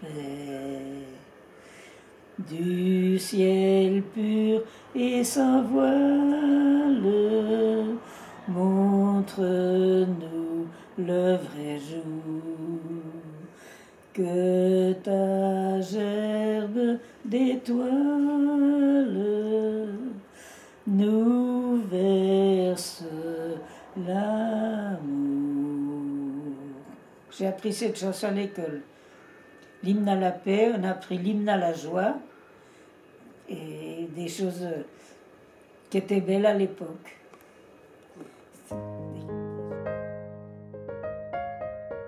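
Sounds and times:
elderly woman singing: 0.0s - 1.4s, 2.4s - 28.9s, 29.6s - 32.3s, 33.2s - 34.9s, 35.9s - 37.1s.

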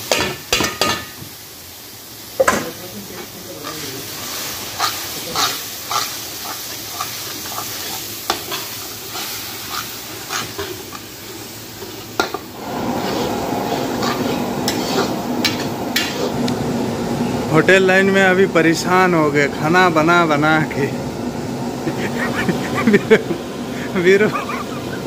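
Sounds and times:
food sizzling: 0.0s - 25.0s
metal ladle scraping a wok: 3.6s - 11.1s, 11.8s - 16.5s
steady rushing hum: 11.2s - 25.0s.

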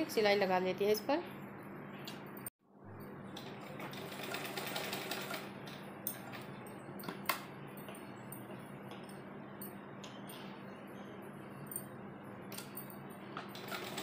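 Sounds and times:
sewing machine stitching: 13.5s - 14.0s.

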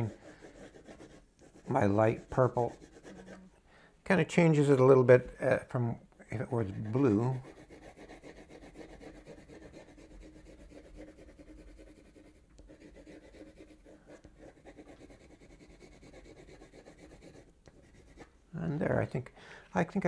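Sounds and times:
coloured pencil strokes on paper: 0.0s - 3.5s, 6.6s - 18.3s.

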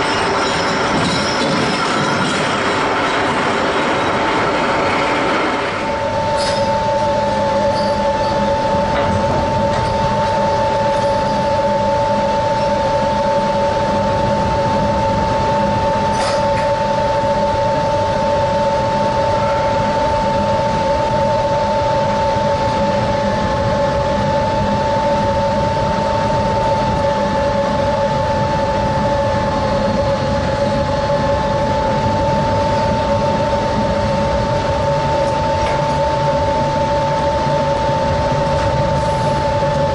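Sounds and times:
deck winches whining: 0.0s - 11.6s.

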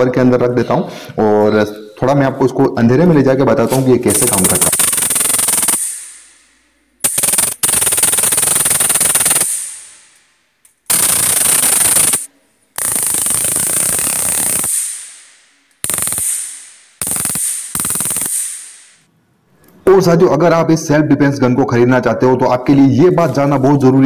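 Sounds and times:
stun gun electric crackle: 4.1s - 10.2s, 10.9s - 19.1s.

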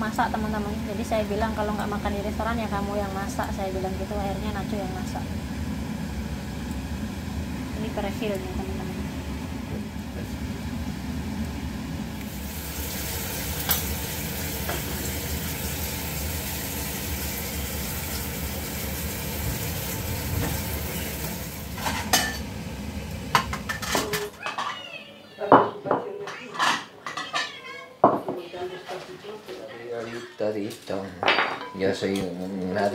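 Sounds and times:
sauce sizzling in a pan: 10.5s - 23.9s
plates clattering: 23.3s - 24.8s, 25.5s - 29.0s, 31.2s - 31.8s
utensils and dishes knocking: 23.3s - 24.8s.

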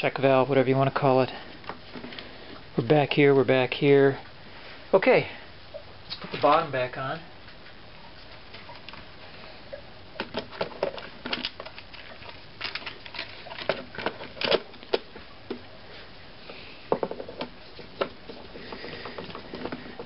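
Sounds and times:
hard plastic clicking and knocking: 16.9s - 20.0s.

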